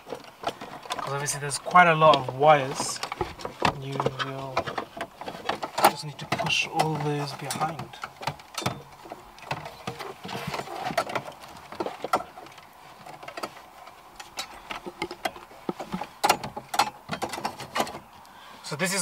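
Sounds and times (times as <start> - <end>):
car stereo clicking and knocking: 0.0 - 12.6, 14.2 - 18.1
wiring rustling: 0.0 - 19.0.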